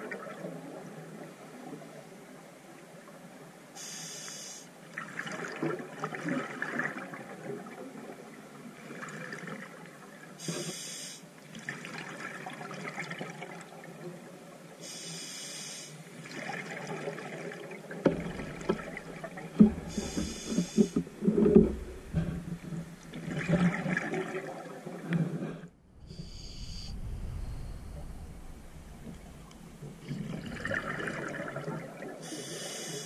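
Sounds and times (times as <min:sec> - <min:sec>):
regulator inhalation hiss: 0:03.8 - 0:04.7, 0:10.4 - 0:11.3, 0:14.8 - 0:16.0, 0:19.9 - 0:21.0, 0:26.1 - 0:27.0, 0:32.2 - 0:33.0
gurgling exhaled bubbles: 0:18.2 - 0:24.7, 0:25.9 - 0:32.2.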